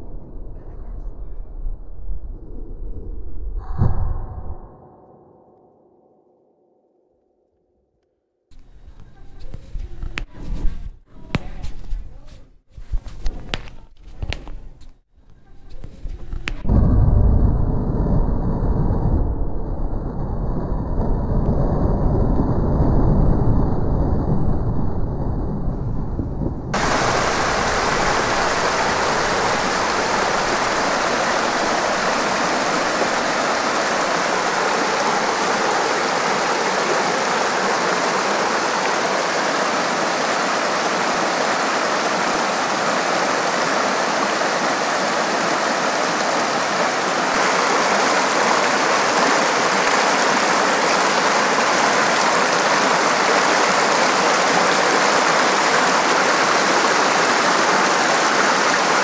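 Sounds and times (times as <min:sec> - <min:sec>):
creek rushing over boulders: 0:26.8 - 0:59.0.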